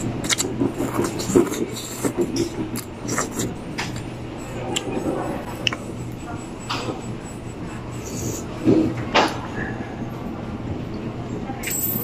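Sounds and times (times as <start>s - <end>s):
steady background hum: 0.0s - 12.0s
slurping noodles: 0.2s - 3.5s.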